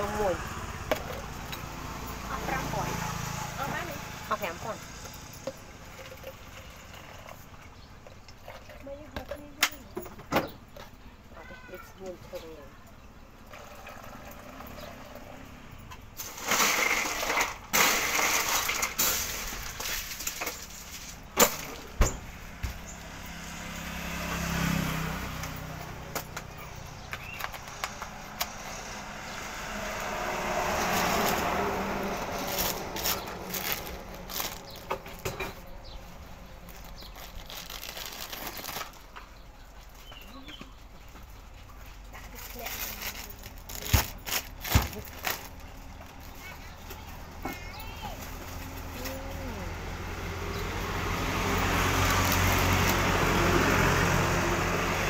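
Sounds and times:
plastic cups and lids clattering: 5.0s - 10.9s, 16.2s - 22.0s, 30.8s - 35.9s, 42.1s - 46.9s.

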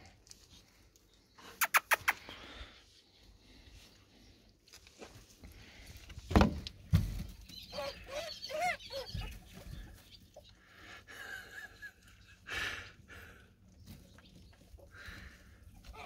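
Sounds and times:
squeaky animal calls: 7.7s - 9.4s.

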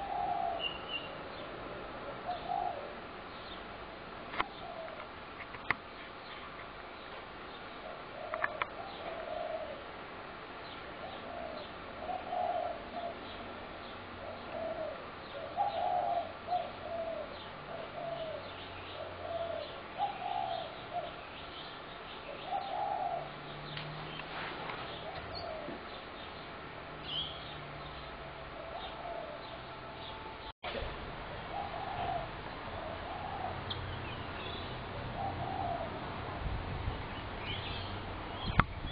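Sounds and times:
doves cooing: 0.0s - 1.1s, 2.0s - 3.0s, 4.5s - 5.1s, 7.8s - 9.9s, 11.0s - 13.6s, 14.2s - 21.2s, 22.3s - 26.3s, 28.5s - 29.9s, 31.5s - 33.8s, 34.9s - 36.2s
small birds chirping: 0.0s - 1.6s, 2.2s - 9.9s, 10.6s - 36.0s, 36.7s - 38.9s.

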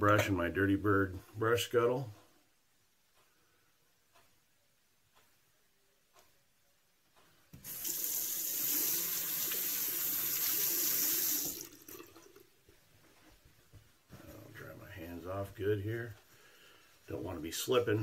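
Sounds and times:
tap water running into sink: 7.6s - 12.4s.

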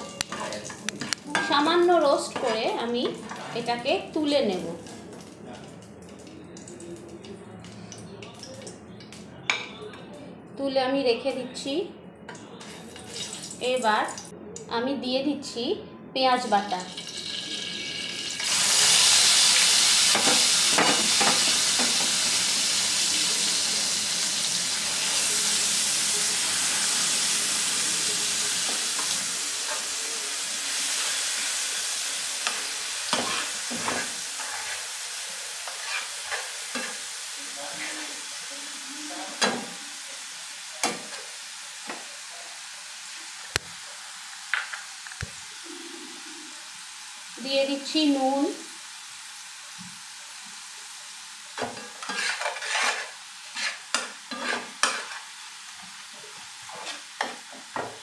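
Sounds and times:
onion paste sizzling in hot oil: 12.6s - 14.0s, 16.4s - 58.0s
spatula knocking and scraping pan: 32.5s - 34.8s, 51.6s - 55.2s.

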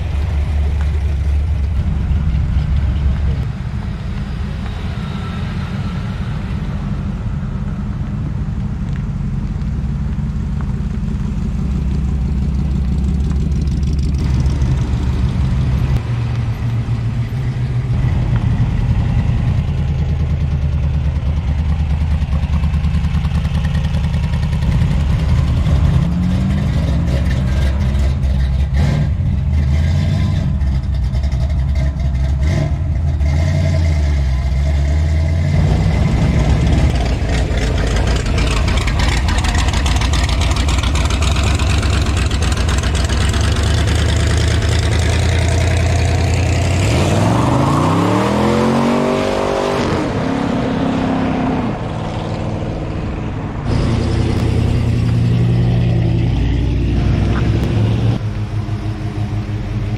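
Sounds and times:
car engines idling loudly: 0.0s - 26.1s, 35.5s - 46.8s, 51.8s - 59.9s
engine revving: 32.2s - 59.9s.

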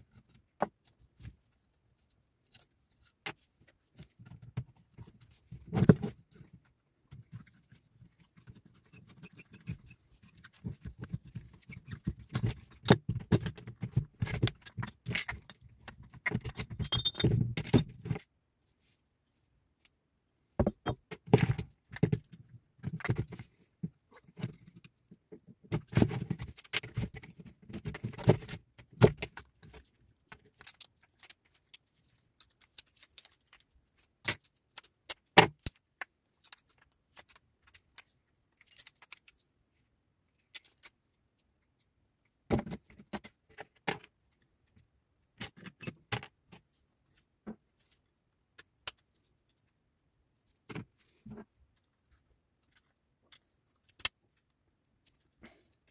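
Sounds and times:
small metal parts clinking: 11.6s - 18.1s, 29.6s - 35.8s, 36.4s - 39.4s, 40.4s - 41.0s.

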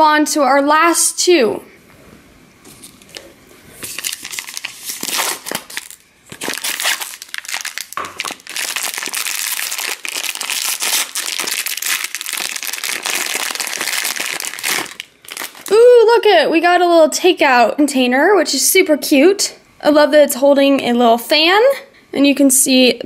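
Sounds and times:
foil pouch crinkling: 3.8s - 15.8s.

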